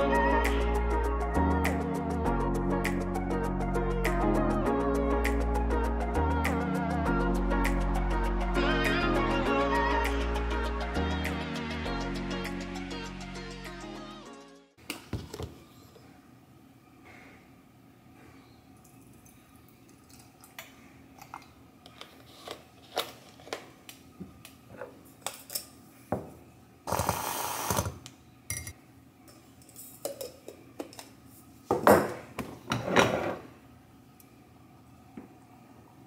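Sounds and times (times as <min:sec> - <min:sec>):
milk frother whirring: 0:26.9 - 0:28.0.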